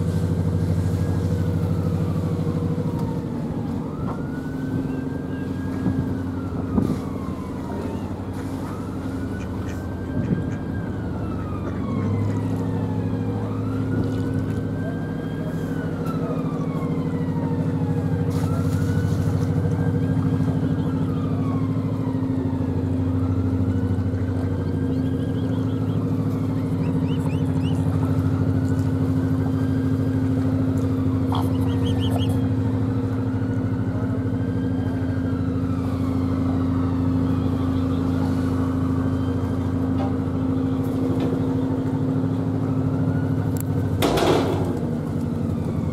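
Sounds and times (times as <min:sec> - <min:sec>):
boat diesel engine running: 0:00.0 - 0:45.9
siren wailing: 0:00.1 - 0:45.9.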